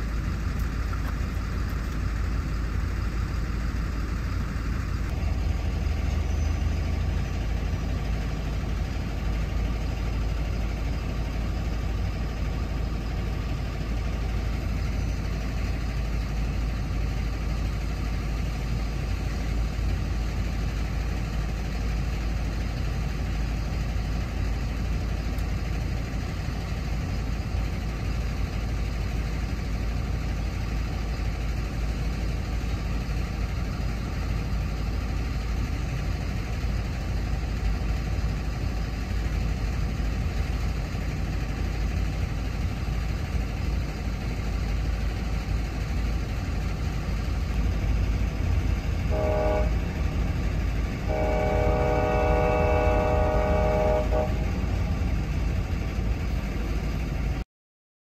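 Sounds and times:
train wheels rumbling on rail: 0.0 - 57.4
train horn blasts: 49.0 - 55.2.

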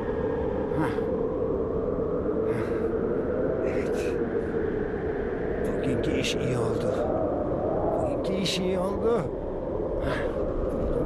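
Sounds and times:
background rumble and hiss: 2.4 - 4.8, 5.5 - 11.0.

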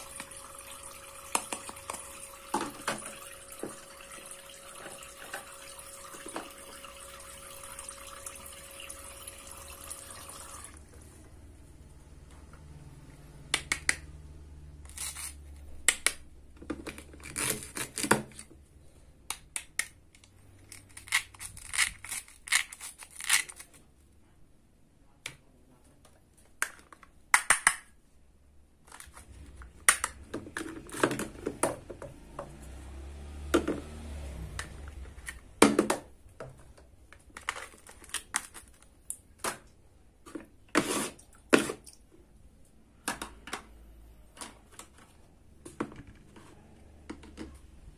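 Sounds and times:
scratchy velcro rips: 14.8 - 15.5, 20.7 - 23.8.

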